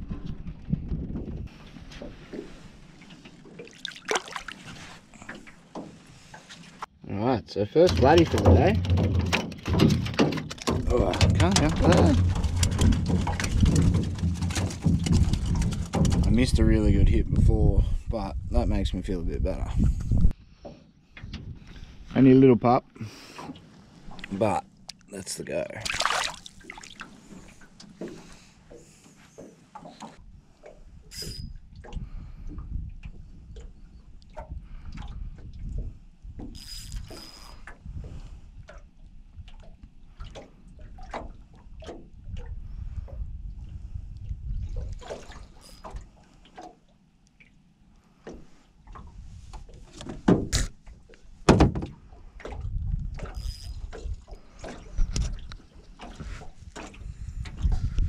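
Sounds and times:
fishing gear clattering: 7.9 - 16.6
sharp loud knocks: 51.5 - 52.0.

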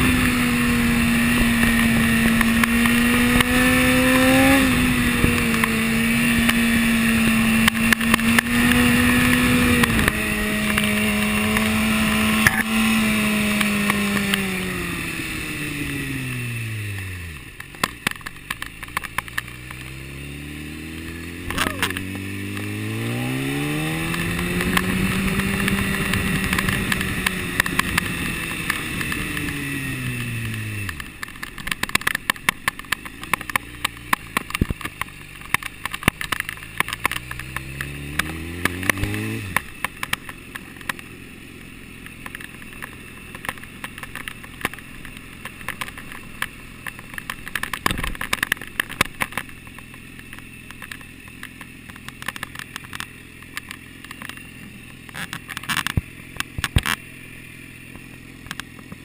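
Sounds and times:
motorcycle engine revving: 0.0 - 59.0
sharp clicks: 42.0 - 57.1.

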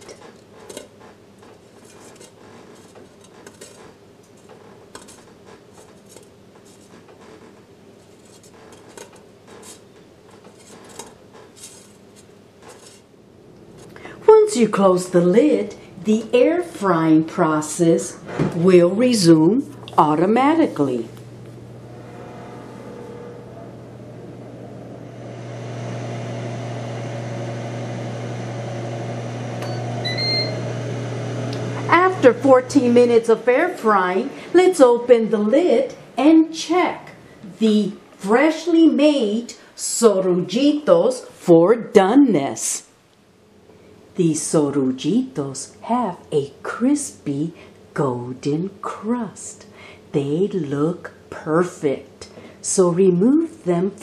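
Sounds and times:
faint steady hum: 0.0 - 54.0
air fryer fan hum: 18.2 - 34.6.

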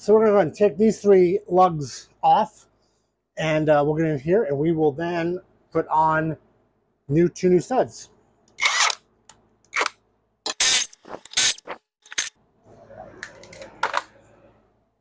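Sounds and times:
impact wrench bursts: 8.6 - 9.0, 10.5 - 12.3.

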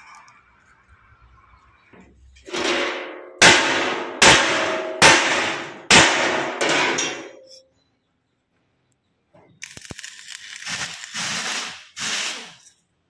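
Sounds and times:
hammer striking steel frame: 2.4 - 7.6.

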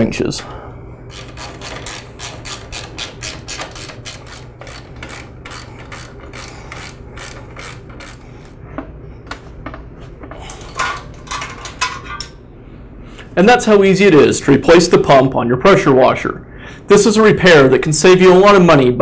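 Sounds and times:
ratchet wrench clicking: 1.1 - 8.6.

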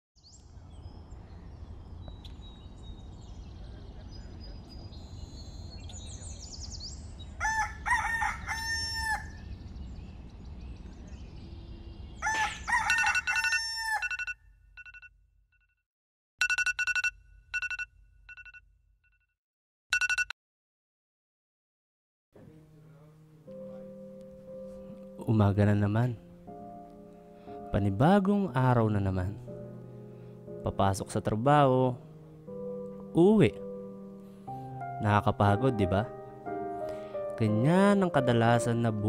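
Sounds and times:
rooster crowing: 7.4 - 9.4, 12.2 - 14.3
electronic alarm beeping: 13.0 - 15.1, 16.4 - 18.6, 20.0 - 20.3.

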